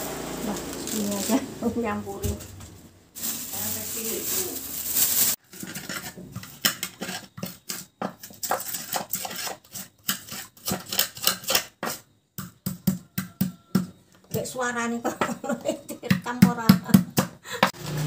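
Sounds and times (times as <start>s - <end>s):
pestle crushing in a mortar: 5.4s - 14.5s, 16.1s - 17.4s.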